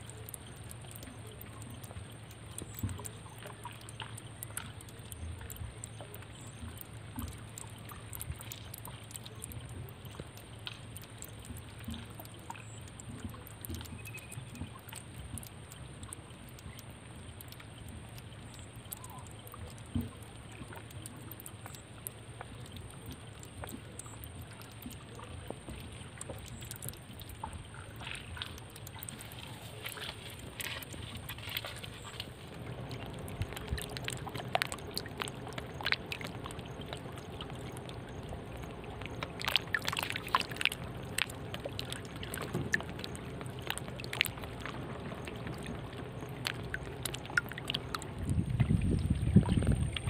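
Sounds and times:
small clicks and ticks: 0.0 - 50.0
steady low hum: 0.0 - 50.0.

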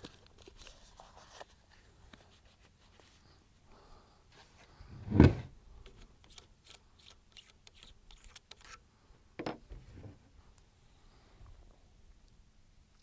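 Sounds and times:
thump on plastic table: 5.0 - 5.5.

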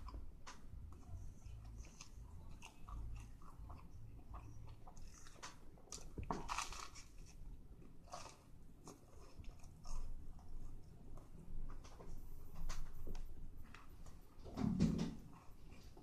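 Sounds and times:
person chewing a sandwich: 0.0 - 14.3, 15.1 - 16.0.

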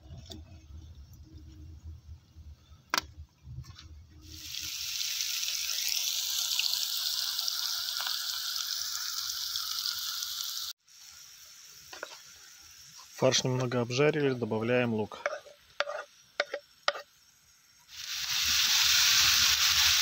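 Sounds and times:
meat sizzling in a pan: 4.2 - 20.0.

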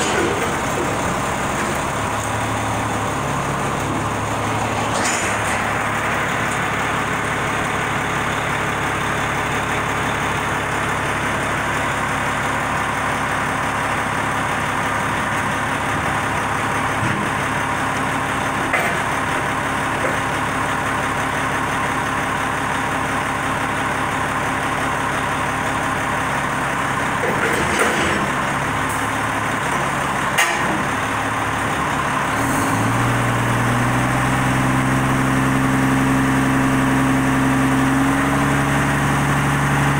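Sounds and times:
diesel engine idling: 0.0 - 39.9
engine revving up: 32.3 - 39.9.

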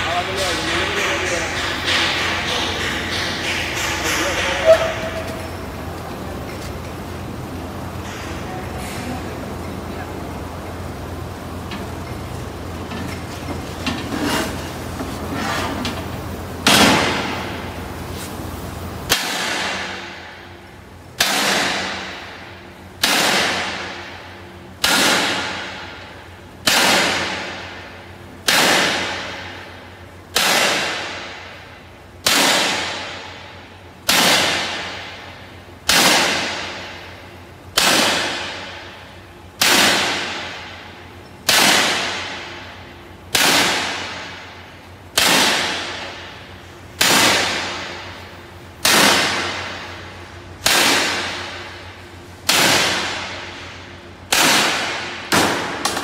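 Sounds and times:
hammer clanging on steel: 0.1 - 5.6.

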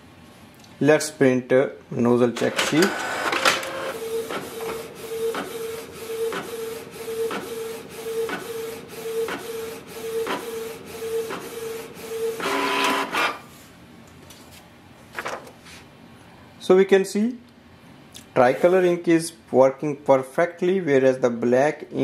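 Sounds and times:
printer carriage whine: 2.3 - 13.5, 18.4 - 18.8
printer paper feed whir: 2.4 - 13.5, 18.4 - 18.8.

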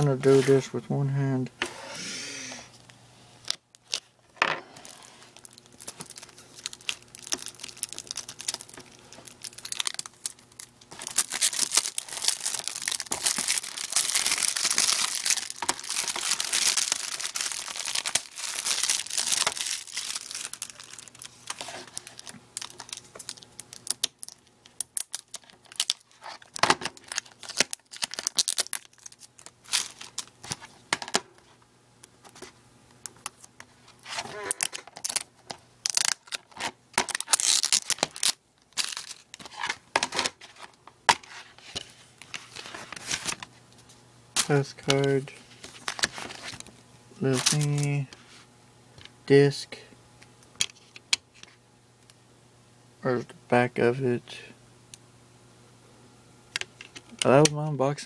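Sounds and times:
plastic shrink wrap crinkling: 4.7 - 30.9, 33.1 - 48.1.

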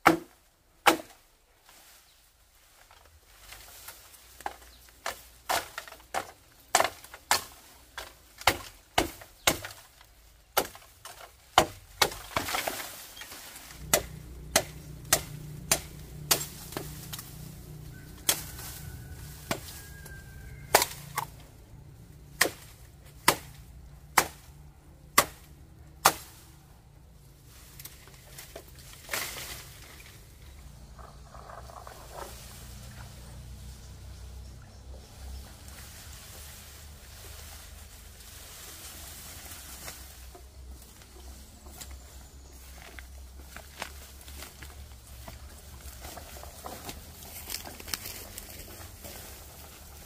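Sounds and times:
low steady hum: 11.8 - 50.0
blade chopping: 13.6 - 18.6, 22.3 - 26.4.

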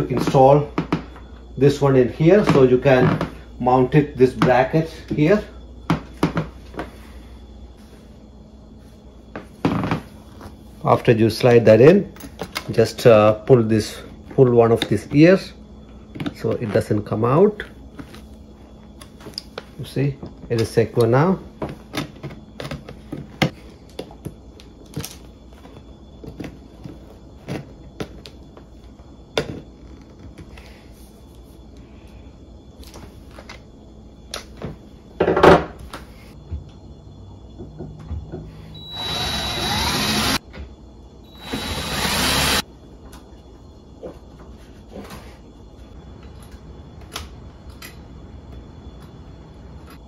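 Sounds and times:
cordless drill driving screw: 38.8 - 40.4, 41.3 - 42.6.

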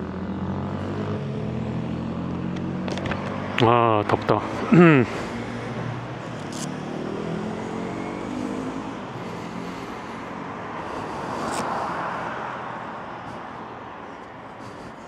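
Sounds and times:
car passing by: 4.3 - 15.0.

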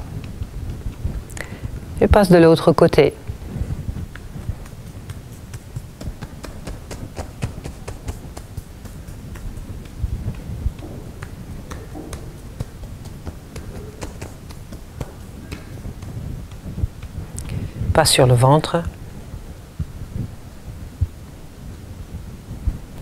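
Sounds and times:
fingertips tapping on trousers: 0.0 - 2.0, 3.4 - 17.7.

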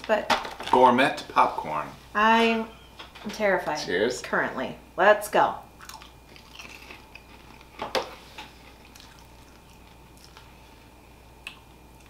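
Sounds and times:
popcorn being chewed: 5.8 - 10.8, 11.4 - 12.0.

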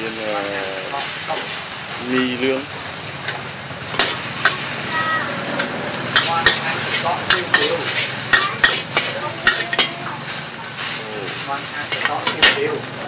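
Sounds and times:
noodles sizzling in a wok: 0.0 - 13.0
metal ladles clacking on a pan: 3.2 - 4.7, 5.6 - 10.1, 11.9 - 12.8.

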